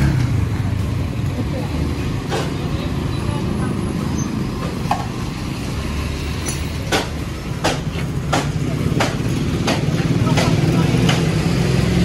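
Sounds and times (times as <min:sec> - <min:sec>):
motor vehicle rumble: 0:00.0 - 0:12.0
sharp knocks: 0:06.9 - 0:11.3.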